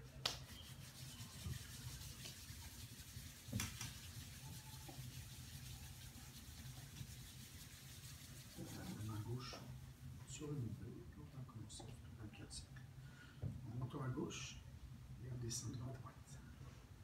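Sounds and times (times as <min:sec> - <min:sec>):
low steady hum: 0:00.0 - 0:17.0
hands rubbing over body: 0:00.1 - 0:09.8.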